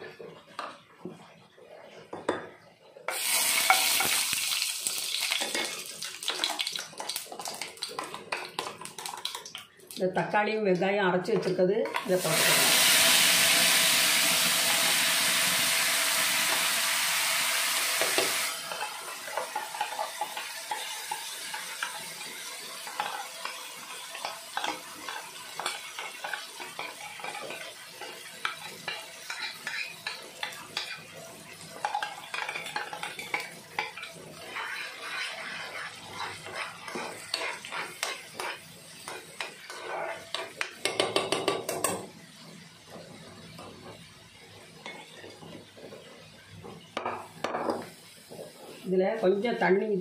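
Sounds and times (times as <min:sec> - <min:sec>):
paste sizzling in hot oil: 0:03.1 - 0:10.1, 0:12.0 - 0:49.3
spoon scraping a pan: 0:17.9 - 0:42.1, 0:42.9 - 0:46.1.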